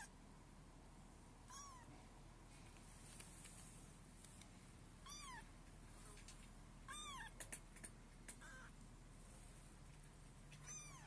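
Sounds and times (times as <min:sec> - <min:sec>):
kitten mewing: 0:01.5 - 0:01.9, 0:05.0 - 0:05.5, 0:06.8 - 0:08.8, 0:10.5 - 0:11.0.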